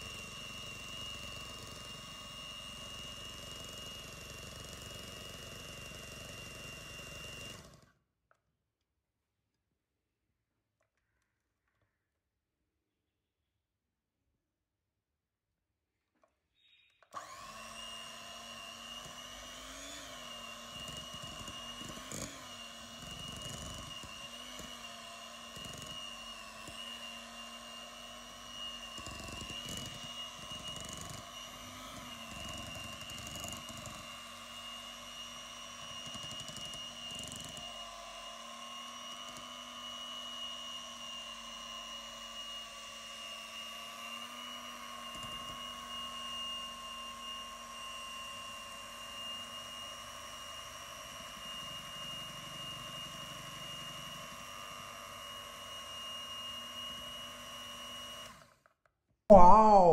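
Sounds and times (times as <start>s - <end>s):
stand mixer motor whine: 0.0s - 7.9s, 17.1s - 58.6s.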